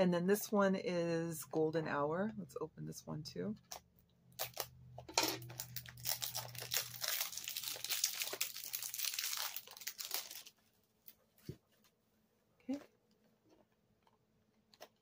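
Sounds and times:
packaging crinkling and tearing: 4.3 - 4.8, 5.4 - 11.2.

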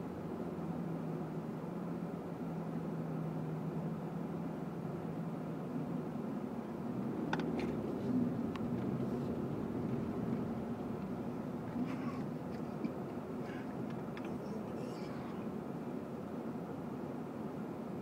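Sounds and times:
car engine idling: 5.0 - 16.1.

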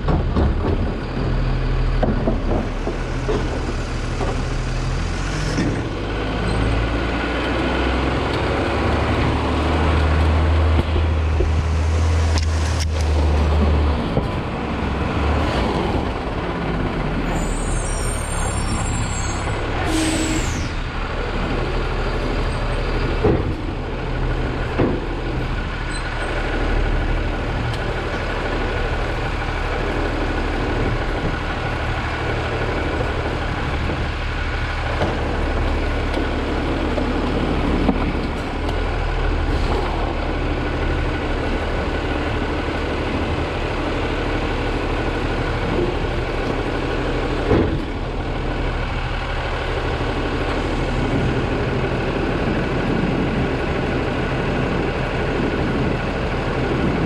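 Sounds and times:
garbage truck engine drone: 0.0 - 57.0
air brakes hissing: 17.3 - 21.0.

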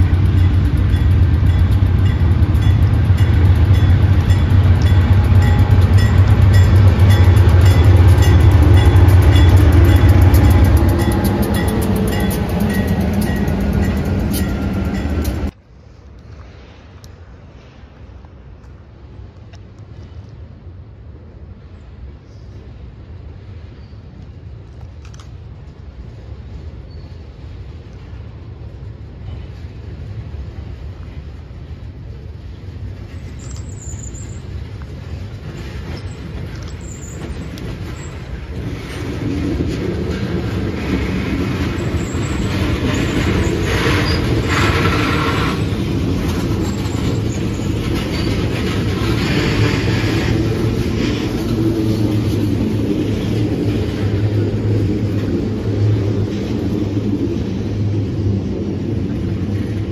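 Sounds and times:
steel wheels clattering on rails: 0.0 - 15.6, 29.1 - 59.9
freight train rumble: 0.0 - 59.9
wheels squealing: 33.1 - 57.5.

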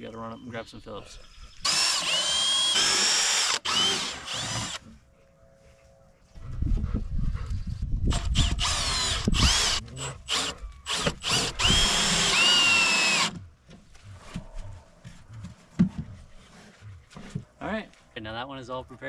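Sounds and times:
power drill driving screws: 1.6 - 4.8, 8.1 - 13.4.

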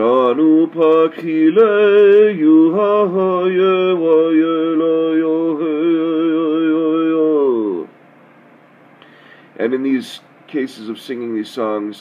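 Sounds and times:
man singing unaccompanied: 0.0 - 7.9.

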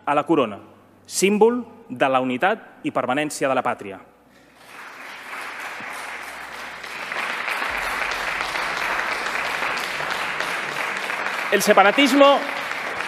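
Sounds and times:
people clapping: 4.4 - 13.0.

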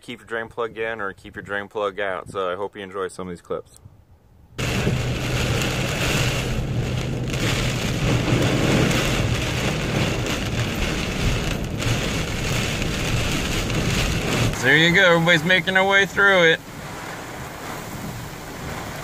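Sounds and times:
low engine hum: 4.6 - 19.0
water spraying and splashing: 4.6 - 19.0.

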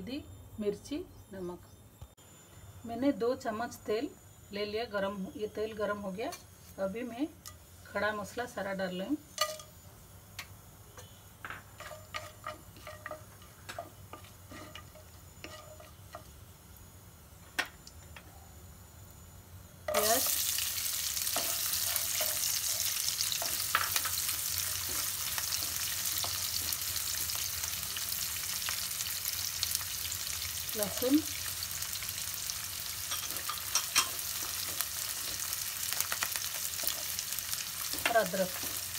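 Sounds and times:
onions sizzling in oil: 2.9 - 18.0, 18.7 - 38.9
spices popping in hot oil: 9.3 - 18.3, 19.8 - 38.9
spatula stirring: 11.8 - 16.3, 21.2 - 26.7.

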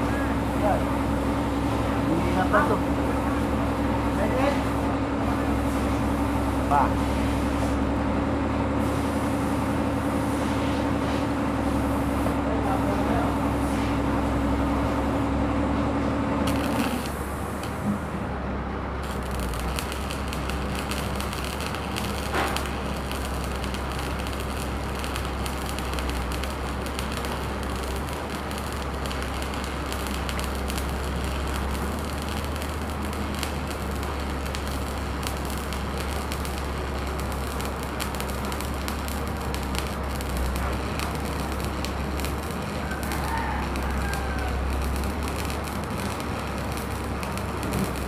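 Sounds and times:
welding arc crackling: 0.0 - 17.8, 19.0 - 48.0.

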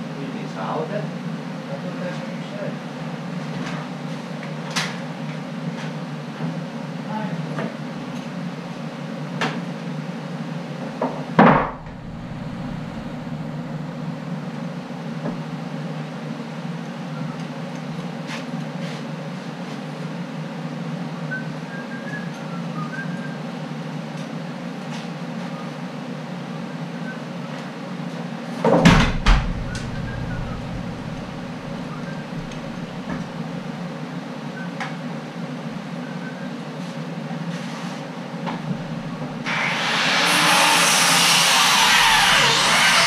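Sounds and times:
steady background hum: 0.0 - 24.8, 27.5 - 39.8
power tool running: 11.6 - 13.8, 29.4 - 33.2, 38.9 - 43.0.

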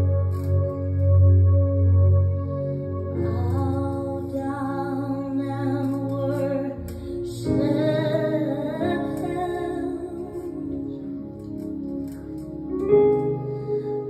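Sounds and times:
soft sustained accompaniment: 0.0 - 14.0
woman singing gospel song: 3.2 - 11.0.

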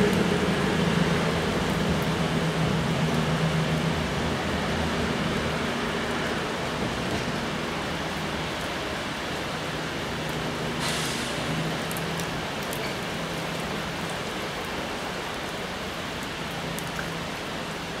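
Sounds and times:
diesel train engine drone: 0.0 - 12.5
heavy rain falling: 0.0 - 18.0
brief hiss: 10.8 - 11.4.

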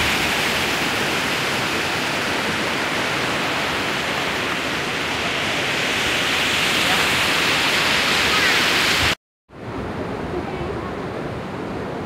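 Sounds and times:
waterfall rushing: 0.0 - 9.2.

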